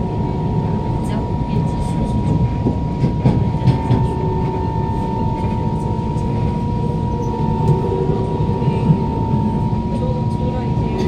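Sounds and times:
wheels rumbling on rail: 0:00.0 - 0:11.0
traction motor whine: 0:03.4 - 0:11.0.

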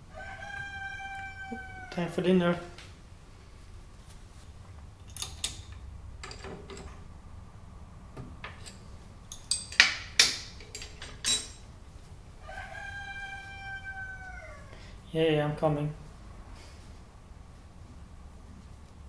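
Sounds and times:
metal tool clinking on machine: 0:08.6 - 0:11.7.

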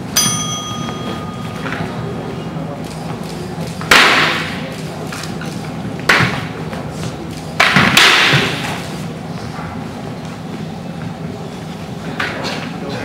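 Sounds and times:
swords clacking in a hall: 0:00.0 - 0:06.6, 0:07.2 - 0:09.0.

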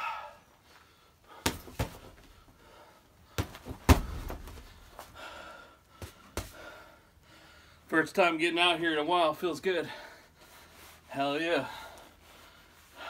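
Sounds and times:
punches thudding on heavy bag: 0:01.4 - 0:02.3, 0:03.4 - 0:04.9.

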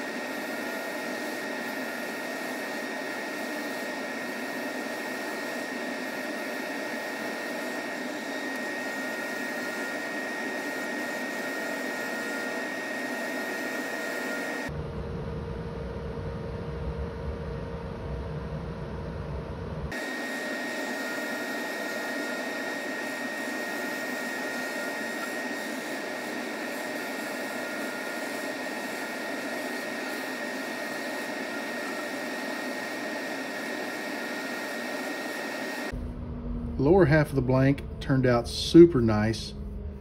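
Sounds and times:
wood lathe turning tool hissing: 0:00.0 - 0:14.7, 0:20.0 - 0:35.9
low rumble: 0:35.9 - 0:40.0.

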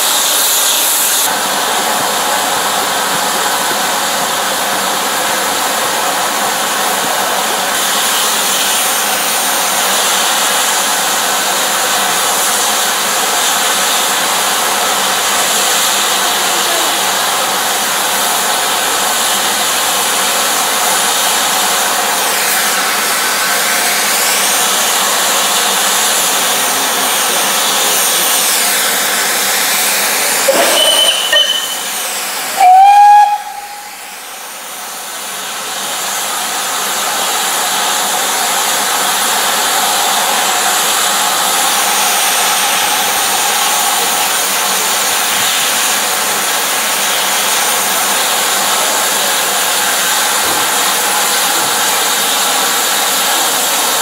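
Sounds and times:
steam hissing: 0:00.0 - 0:54.0
locomotive whistle blast: 0:30.3 - 0:34.5
short high whistle: 0:30.4 - 0:34.4.

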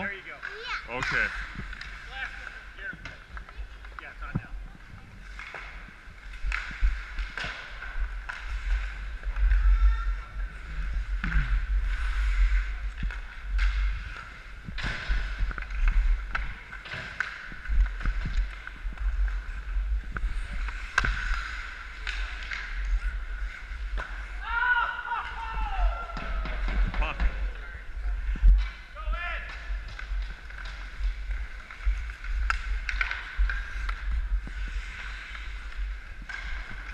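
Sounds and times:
hockey sticks and puck clicking: 0:00.3 - 0:04.5, 0:05.3 - 0:09.7, 0:12.9 - 0:24.5, 0:29.4 - 0:36.9
ice skates scraping: 0:01.3 - 0:25.5, 0:29.5 - 0:36.9.

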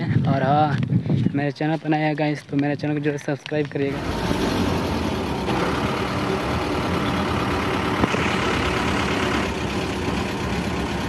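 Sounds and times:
road noise: 0:01.6 - 0:11.0
bus engine running: 0:03.9 - 0:11.0.

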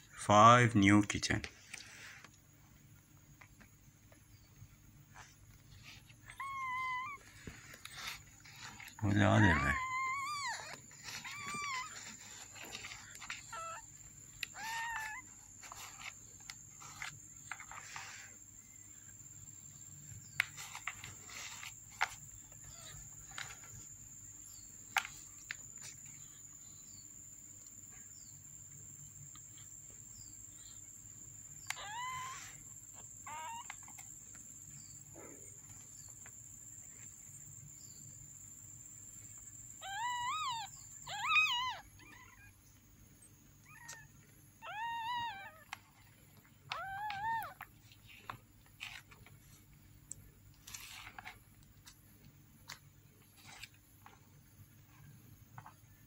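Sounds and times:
kittens mewing: 0:06.0 - 0:16.2, 0:31.6 - 0:34.2, 0:39.8 - 0:42.6, 0:43.6 - 0:49.2.

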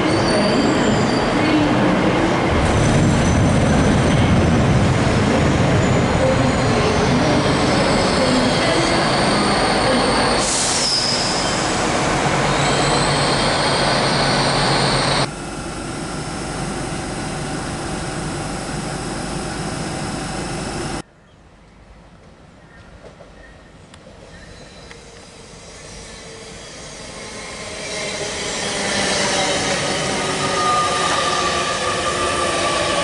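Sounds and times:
train running into station: 0:00.0 - 0:21.0, 0:22.0 - 0:33.0
high squeal sliding down: 0:06.5 - 0:15.3, 0:24.6 - 0:33.0.

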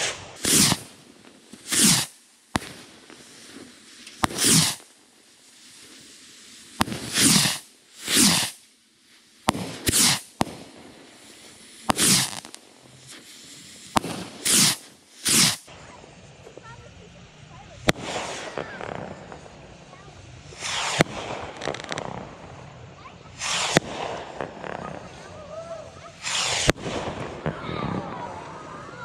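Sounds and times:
sharp pops: 0:00.0 - 0:00.9, 0:01.5 - 0:04.9, 0:06.8 - 0:08.6, 0:09.5 - 0:10.7, 0:11.8 - 0:15.7
bottle rockets whooshing: 0:01.7 - 0:02.1, 0:04.2 - 0:04.8, 0:07.0 - 0:08.6, 0:09.8 - 0:10.3, 0:13.9 - 0:15.7, 0:23.4 - 0:25.3, 0:26.1 - 0:26.8.

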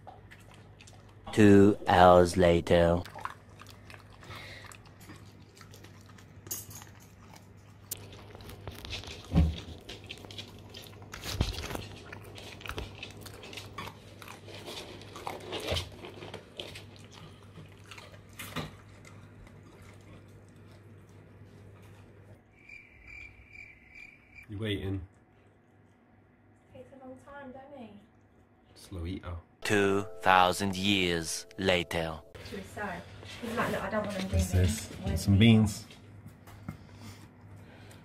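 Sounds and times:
puppy chewing and licking: 0:00.0 - 0:02.1, 0:02.7 - 0:22.4.

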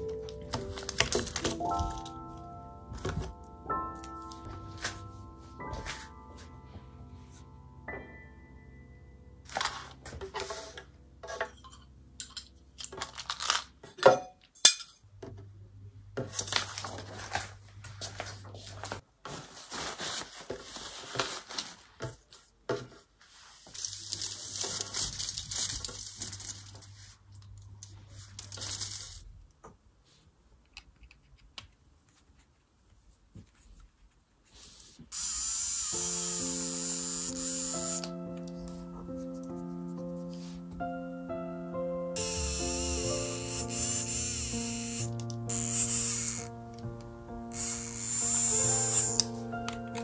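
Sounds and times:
aluminium foil crinkling: 0:00.0 - 0:02.2, 0:12.8 - 0:13.8, 0:23.4 - 0:29.2.

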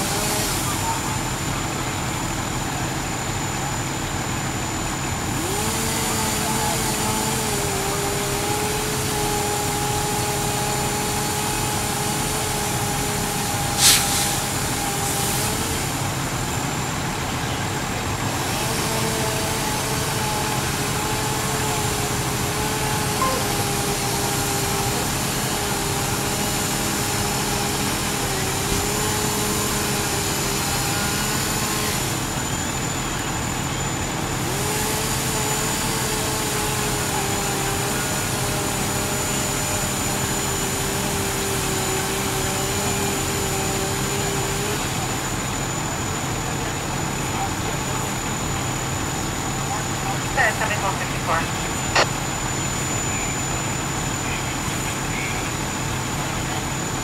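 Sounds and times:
fire engine engines droning: 0:00.0 - 0:57.0
sharp burst of noise: 0:22.9 - 0:26.9, 0:50.3 - 0:53.2.

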